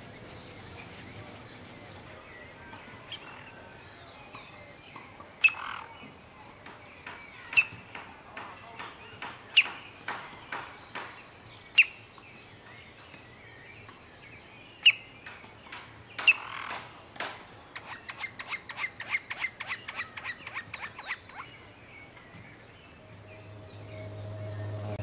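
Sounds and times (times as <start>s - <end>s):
woodpecker calls: 4.3s - 6.0s, 6.7s - 12.1s, 14.8s - 16.9s, 17.7s - 21.6s.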